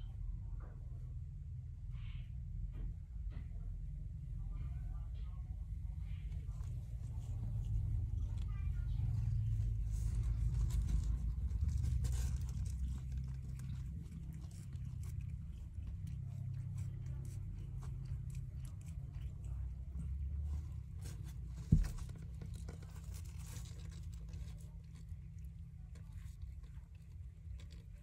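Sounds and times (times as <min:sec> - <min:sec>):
low steady rumble: 0:00.0 - 0:28.0.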